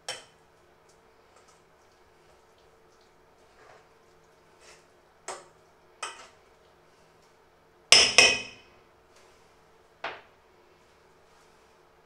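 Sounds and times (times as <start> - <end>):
metal spoon knocking on bowl: 8.0 - 8.6.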